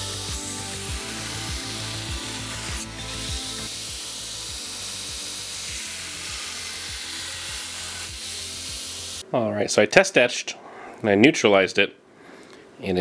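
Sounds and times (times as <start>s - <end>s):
background music with steady beat: 0.0s - 9.2s
belt grinder grinding steel: 0.0s - 9.2s.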